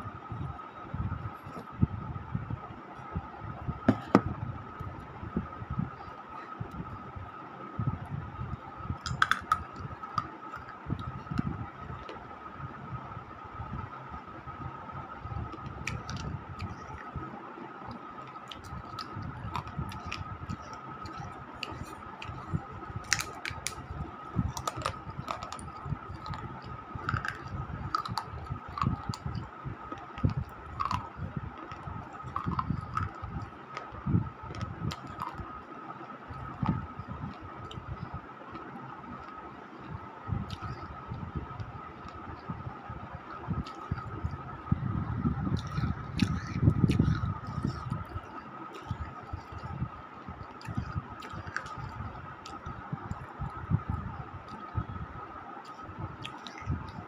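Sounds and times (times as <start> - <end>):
faint high whine: 0.0 - 57.0
chewing mouth sounds: 9.0 - 11.4, 18.2 - 33.4, 45.5 - 48.1.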